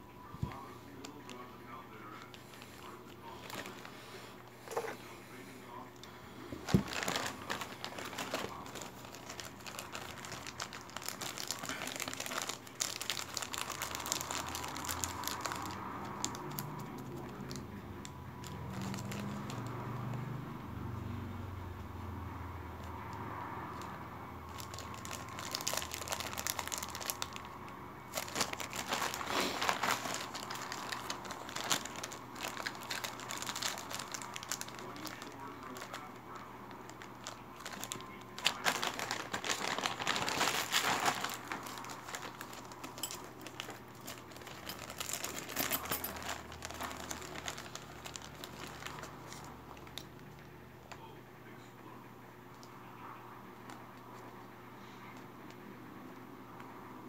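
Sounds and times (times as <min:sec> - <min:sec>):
plastic bags crinkling: 0:02.1 - 0:04.0, 0:06.5 - 0:17.6, 0:18.4 - 0:20.2, 0:23.7 - 0:50.3.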